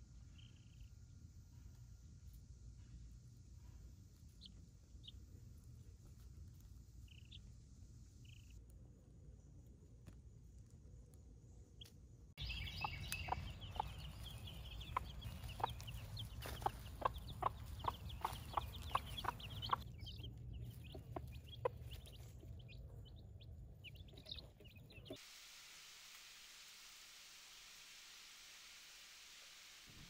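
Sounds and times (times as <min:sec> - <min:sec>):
chicks peeping: 0:12.4 - 0:25.2
hen clucking: 0:12.4 - 0:25.2.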